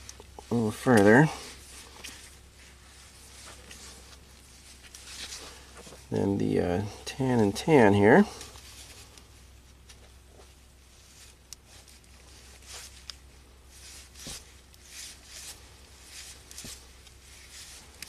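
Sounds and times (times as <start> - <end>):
gloved hands rustling wires: 0.0 - 6.8, 7.4 - 18.0.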